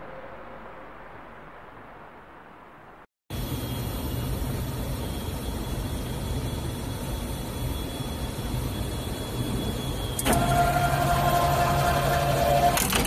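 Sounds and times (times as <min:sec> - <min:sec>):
faint high whine: 0:00.0 - 0:13.0
machine hum and hiss: 0:03.3 - 0:13.0.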